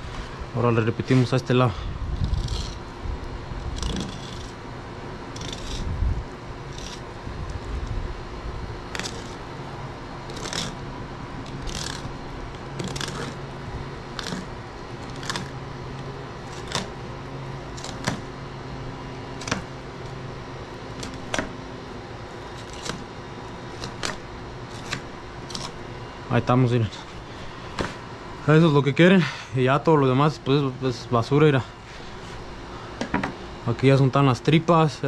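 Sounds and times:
steady low hum: 0.0 - 35.0
knife scraping fish flesh: 2.2 - 2.8, 3.6 - 4.6, 5.3 - 5.9, 6.7 - 7.1, 8.9 - 9.4, 10.3 - 10.8, 11.4 - 12.1, 12.8 - 13.5, 14.1 - 15.6, 16.4 - 17.0, 17.7 - 18.2.

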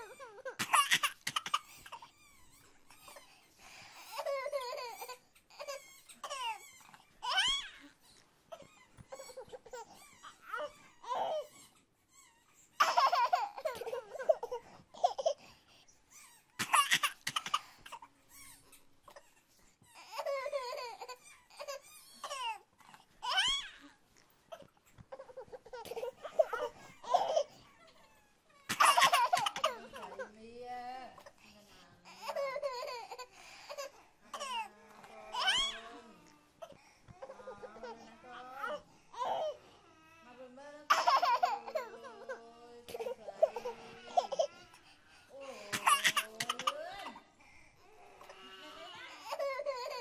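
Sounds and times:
baby laughing and babbling: 12.8 - 15.4, 28.7 - 30.2, 40.9 - 44.7.

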